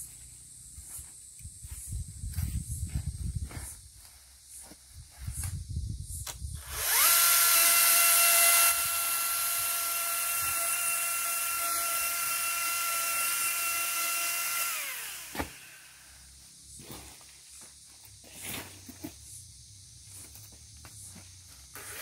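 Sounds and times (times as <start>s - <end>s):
pole chainsaw cutting branch: 6.6s - 16.1s, 21.7s - 22.0s.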